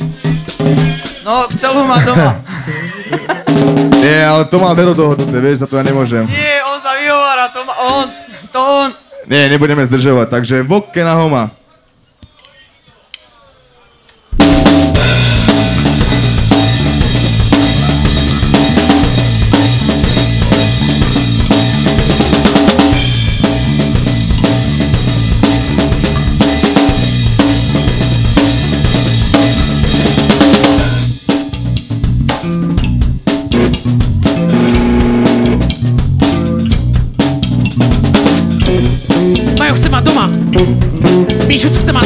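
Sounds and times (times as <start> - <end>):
live band music: 0.0 - 2.4, 3.3 - 6.4, 14.3 - 42.0
drum hits: 3.4 - 4.4, 14.4 - 42.0
bass notes: 14.4 - 42.0.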